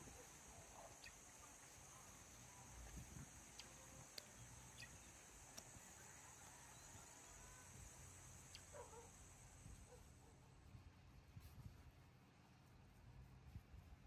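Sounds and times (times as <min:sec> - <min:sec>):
high-pitched insect drone: 0:00.0 - 0:09.9
soft distant chirps: 0:00.0 - 0:10.0
faint sharp ticks: 0:02.8 - 0:06.1, 0:08.4 - 0:08.8.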